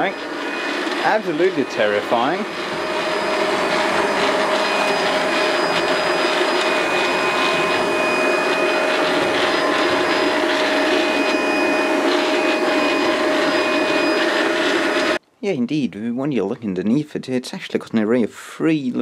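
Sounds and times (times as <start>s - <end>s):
high whine: 0.0s - 15.2s
robot vacuum whirring: 0.0s - 15.2s.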